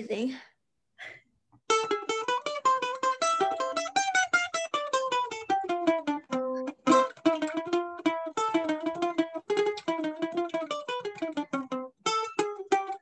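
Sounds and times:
mandolin picked rapidly: 1.7 - 13.0.

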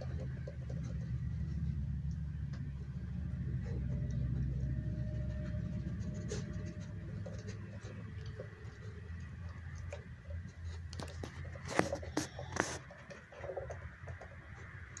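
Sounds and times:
plastic ball clicking and knocking: 0.0 - 1.2
puppy gnawing: 0.0 - 15.0.

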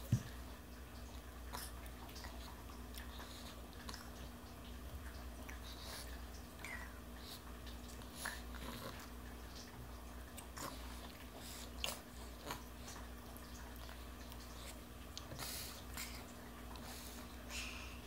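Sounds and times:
toddler chewing: 10.3 - 17.0.

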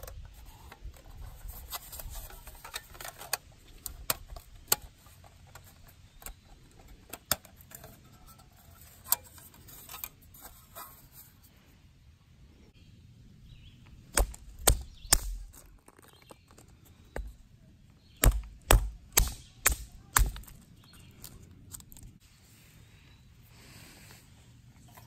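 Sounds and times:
dry sticks snapping: 14.1 - 16.6, 18.2 - 22.2.

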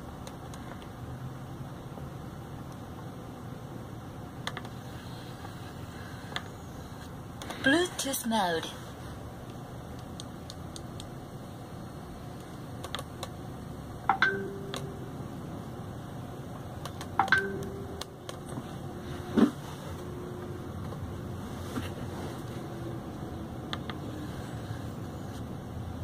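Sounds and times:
low steady tone: 13.8 - 21.4
button clicks: 14.1 - 15.0.

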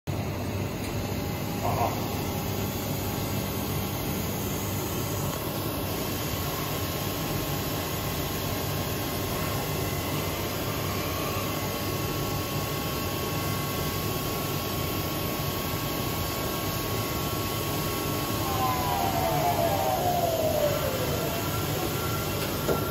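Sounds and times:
high-pitched machine whine: 17.0 - 22.9.

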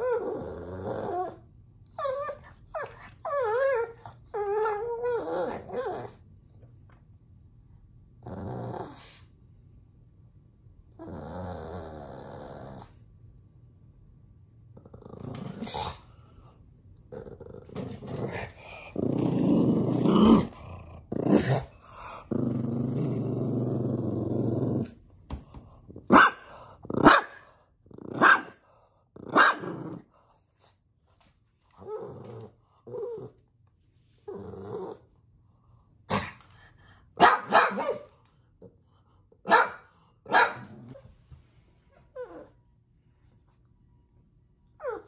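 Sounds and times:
dog growling: 0.0 - 6.2, 8.2 - 9.2, 11.0 - 13.0, 14.8 - 16.3, 17.1 - 25.0, 26.0 - 30.3, 31.8 - 33.4, 34.2 - 35.2
dog barking: 26.1 - 27.4, 28.2 - 28.6, 29.3 - 29.7, 37.2 - 38.1, 39.4 - 40.8.

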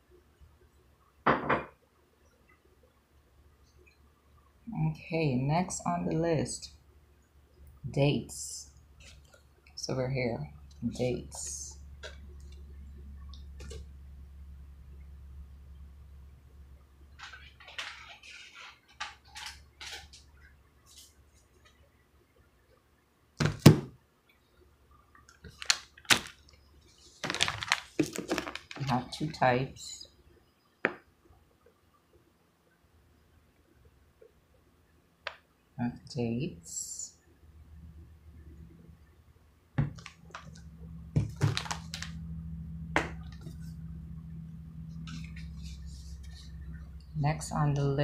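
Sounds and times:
steady low hum: 2.0 - 17.6, 28.8 - 48.0
plastic bag crinkling: 25.4 - 29.4, 41.2 - 42.2.

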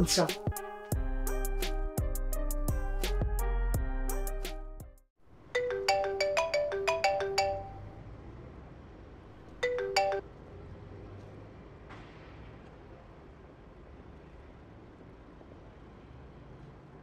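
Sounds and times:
phone ringtone melody: 5.5 - 8.0, 9.6 - 10.3.

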